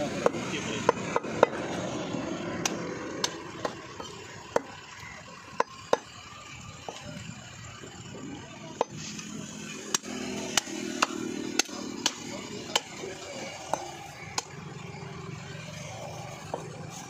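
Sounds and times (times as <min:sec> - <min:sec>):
knife chopping meat on wood: 0:09.9 - 0:12.9.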